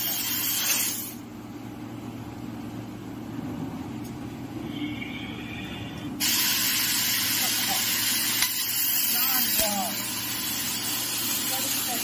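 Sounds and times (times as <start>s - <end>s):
laser cutting hiss: 0.0s - 1.2s, 6.2s - 12.0s.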